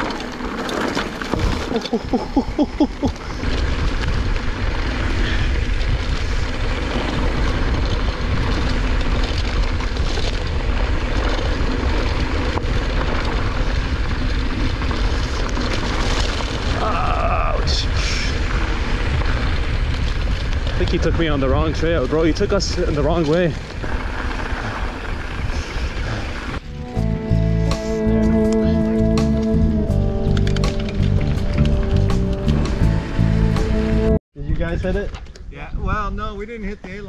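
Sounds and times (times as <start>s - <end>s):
bike tyres rolling on dirt: 0.0s - 27.6s, 28.6s - 37.0s
wind on microphone: 1.3s - 26.6s.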